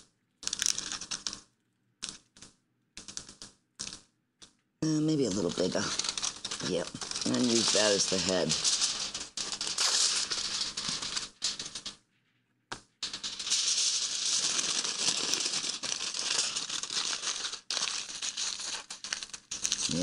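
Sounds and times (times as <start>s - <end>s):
aluminium foil crinkling: 4.9s - 12.0s, 13.0s - 20.0s.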